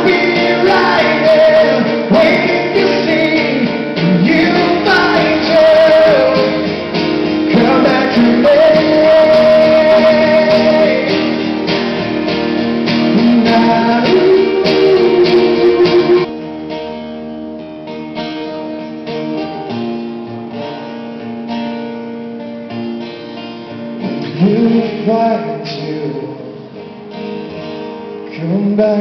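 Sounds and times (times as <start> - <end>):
man singing: 0.0 - 11.7, 12.9 - 16.3, 24.0 - 26.8, 28.2 - 29.0
acoustic guitars strumming: 0.0 - 29.0.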